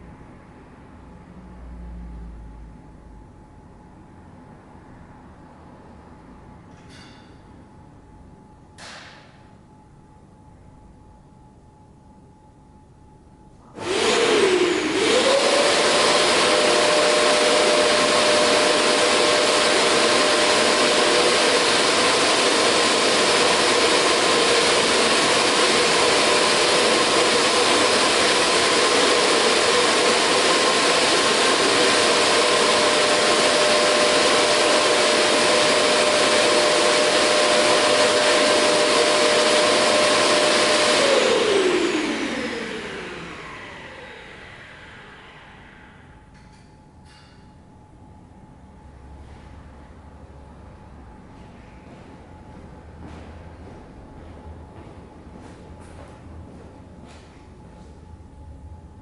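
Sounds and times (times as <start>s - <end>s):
vacuum cleaner motor whine: 13.6s - 46.4s.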